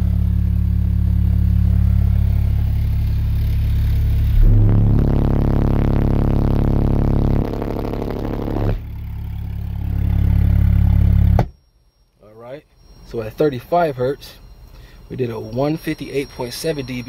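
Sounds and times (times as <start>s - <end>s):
subwoofer bass tone drone: 0.0s - 11.6s.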